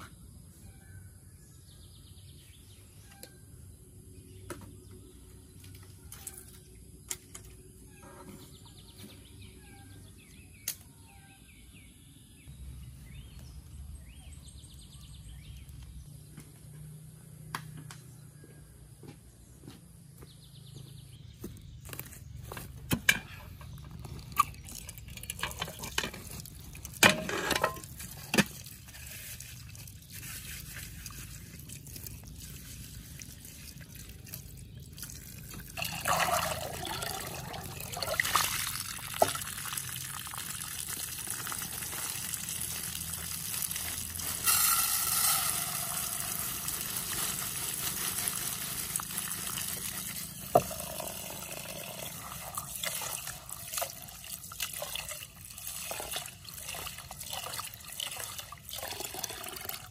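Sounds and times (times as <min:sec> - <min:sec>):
water pouring into a metal pot: 0:24.4 - 0:59.9.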